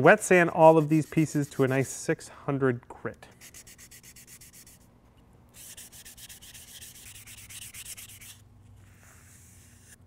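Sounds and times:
sandpaper rubbing on plastic: 0.5s - 1.9s, 3.4s - 4.8s, 5.6s - 10.0s.

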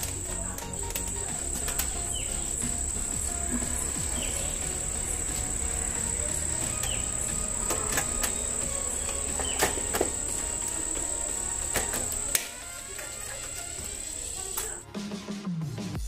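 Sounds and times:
clicks and taps of wiring work: 0.0s - 2.8s, 5.3s - 13.8s
high-pitched whine: 0.0s - 14.8s.

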